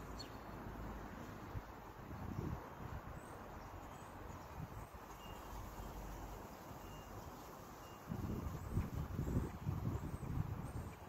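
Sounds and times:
wind buffeting microphone: 1.5 - 3.3, 8.1 - 11.0
faint high chirps: 5.1 - 9.4.

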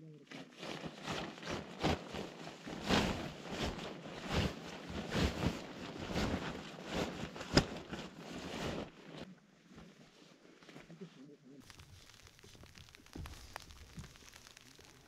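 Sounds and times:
tent flysheet rustling and flapping: 0.3 - 10.9.

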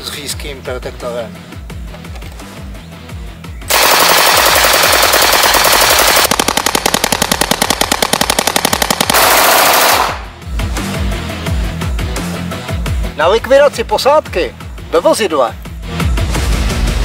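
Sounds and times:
submachine gun automatic fire: 3.7 - 10.3.

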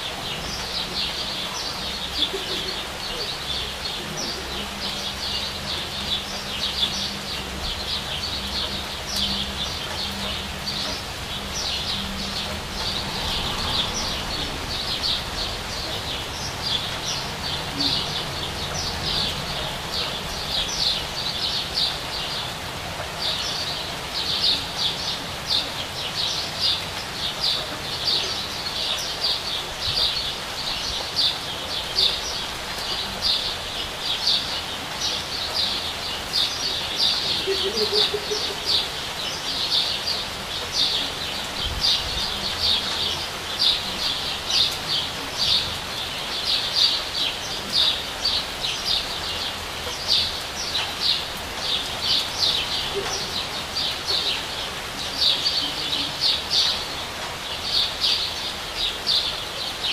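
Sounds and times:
steady rain: 0.0 - 59.9
bird chirping: 23.2 - 59.9.

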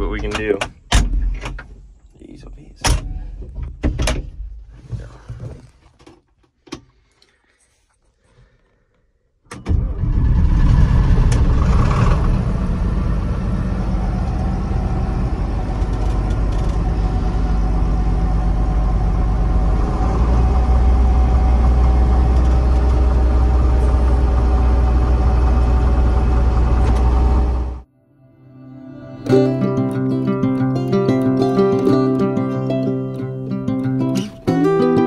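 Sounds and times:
combine harvester running: 9.7 - 27.8.

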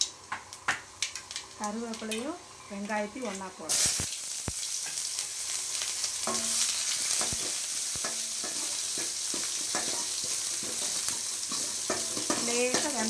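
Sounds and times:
onion sizzling in hot oil: 0.0 - 13.0
spoon scraping a metal pan: 6.2 - 13.0.

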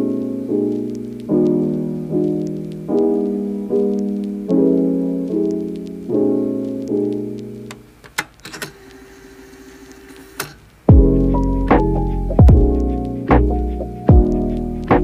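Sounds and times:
slow piano chords: 0.0 - 7.7, 10.9 - 15.0.

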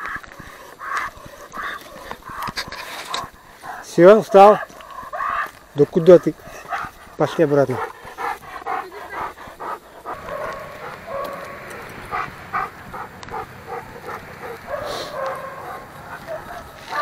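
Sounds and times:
dogs barking: 0.0 - 17.0.

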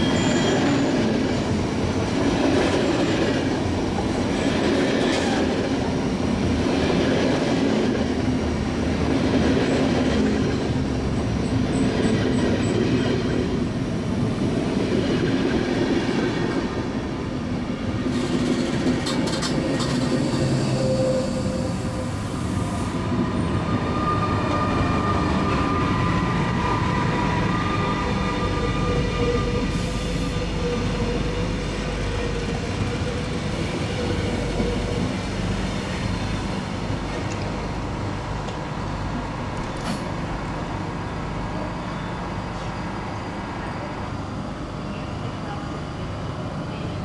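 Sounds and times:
train wheels rumbling on rails: 0.0 - 47.0
train whine: 0.0 - 47.0.

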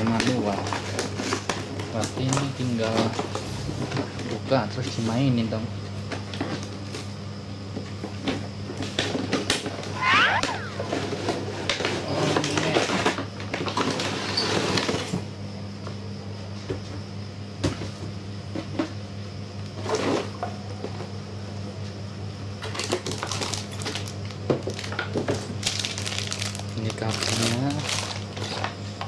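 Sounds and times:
steady low hum: 3.1 - 7.8, 9.6 - 11.7.

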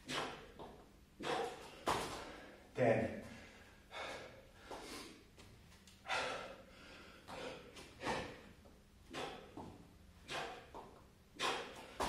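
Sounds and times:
man breathing hard: 0.0 - 12.0.

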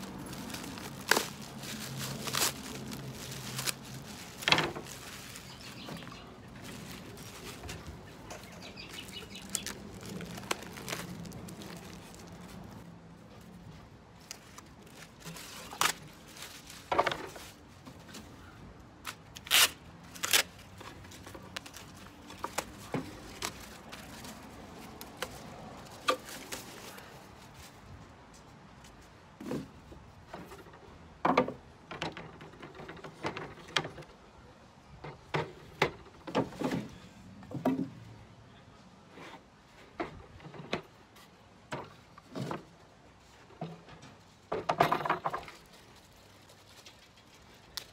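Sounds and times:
plastic wrapping crinkling: 0.0 - 12.8
wooden panels knocking and clattering: 43.6 - 45.6.

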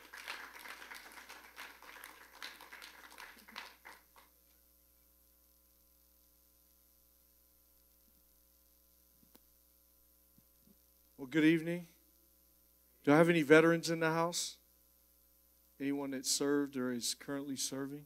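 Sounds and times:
light audience applause: 0.0 - 4.4.

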